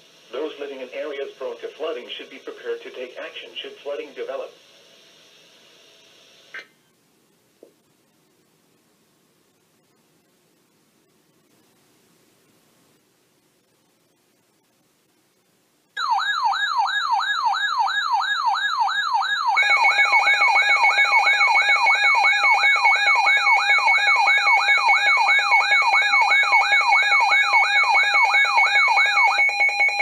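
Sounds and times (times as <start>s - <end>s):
weather radio siren sweeps: 16.0s - 30.0s.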